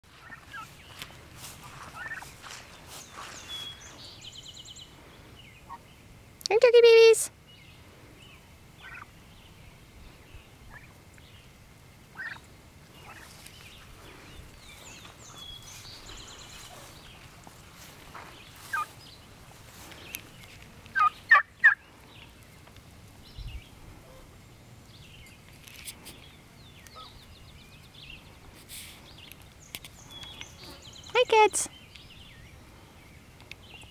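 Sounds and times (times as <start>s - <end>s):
turkeys calling: 0.1s - 4.1s, 8.8s - 9.1s, 10.7s - 11.0s, 12.1s - 20.3s, 20.9s - 22.8s, 26.9s - 27.2s.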